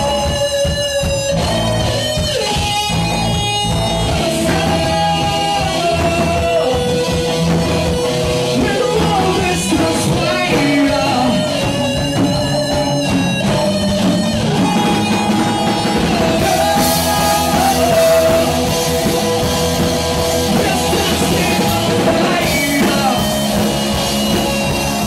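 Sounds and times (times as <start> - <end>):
bass guitar: 0.0 - 25.0
drums: 0.0 - 25.0
electric guitar: 0.0 - 25.0
person singing: 4.0 - 7.3, 8.4 - 24.0.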